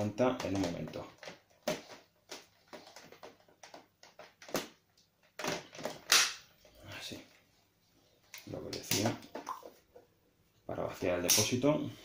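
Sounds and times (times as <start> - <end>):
plastic clicks and knocks: 0.2 - 6.3.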